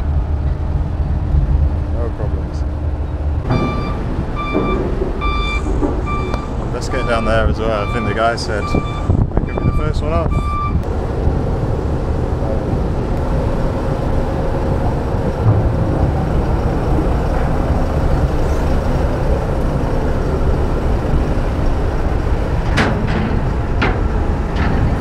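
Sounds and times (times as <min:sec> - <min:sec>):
low engine rumble: 0:00.0 - 0:25.0.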